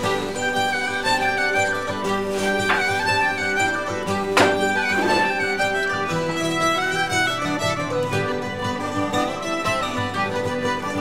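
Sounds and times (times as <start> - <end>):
fiddle folk music: 0.0 - 11.0
sharp knock: 4.4 - 5.4.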